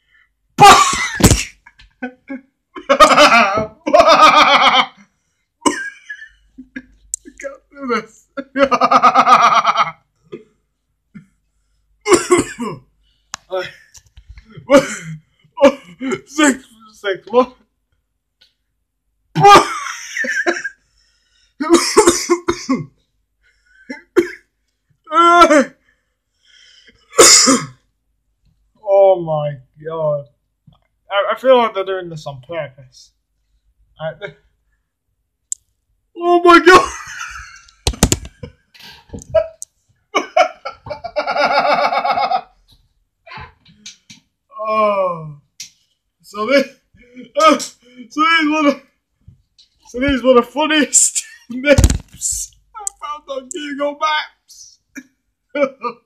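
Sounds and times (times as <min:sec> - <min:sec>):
man laughing hard: 0:02.0 - 0:05.0, 0:08.4 - 0:10.0, 0:40.2 - 0:42.6.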